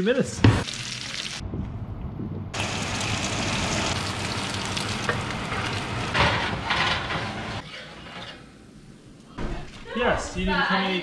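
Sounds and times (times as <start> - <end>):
fish sizzling in oil: 0.6 - 1.4, 2.6 - 6.1
spatula scraping pan: 6.2 - 8.5.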